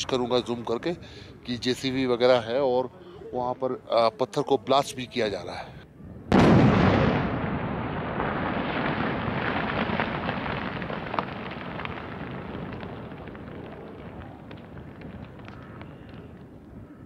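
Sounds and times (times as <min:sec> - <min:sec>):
falling stones clattering: 0:08.4 - 0:16.6.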